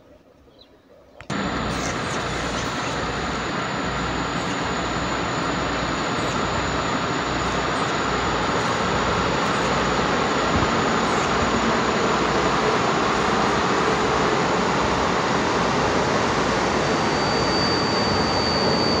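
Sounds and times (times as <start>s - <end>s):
train running rush: 1.3s - 19.0s.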